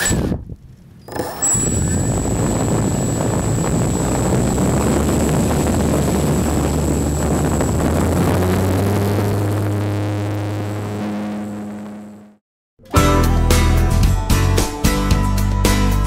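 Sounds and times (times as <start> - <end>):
low steady tones: 1.1 - 12.3
high motor whine: 1.1 - 12.4
propeller air rush: 1.1 - 12.4.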